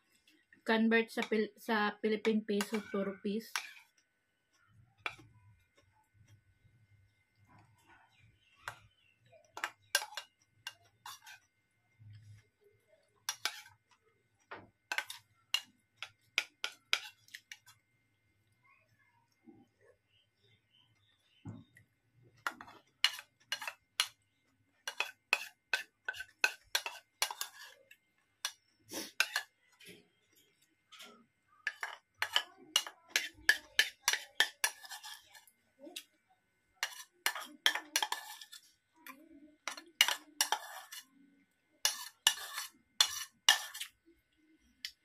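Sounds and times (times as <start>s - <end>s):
metal spoon scraping a bowl: 2.6s - 4.0s, 5.0s - 5.3s, 9.5s - 11.5s, 13.1s - 13.9s, 14.9s - 17.8s, 22.4s - 24.2s, 24.8s - 30.0s, 31.1s - 36.1s, 36.8s - 41.1s, 41.8s - 44.0s.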